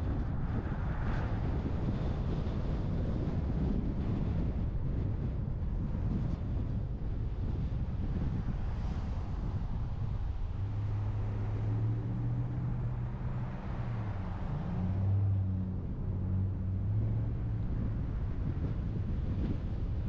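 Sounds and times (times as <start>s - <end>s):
road and wind noise: 0.0s - 20.0s.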